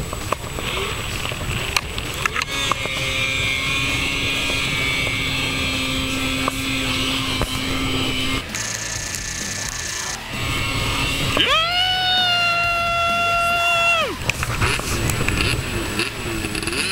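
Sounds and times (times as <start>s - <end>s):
wind buffeting microphone: 0.0s - 8.4s
snowmobile engine whining: 0.0s - 16.9s.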